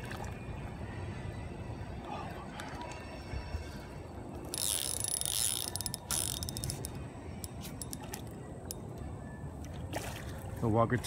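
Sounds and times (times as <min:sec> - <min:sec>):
fishing reel clicks: 0:04.4 - 0:08.8
fishing reel drag buzzing: 0:04.4 - 0:08.8.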